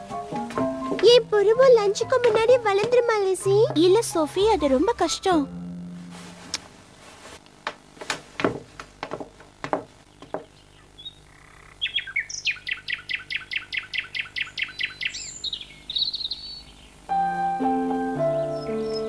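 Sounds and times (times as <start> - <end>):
bird chirping: 10.1 - 17.1, 18.0 - 19.0.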